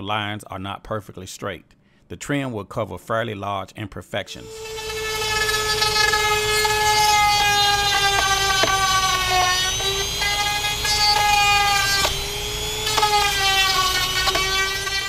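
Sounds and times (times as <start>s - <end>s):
rotary tool whining: 4.4s - 15.0s.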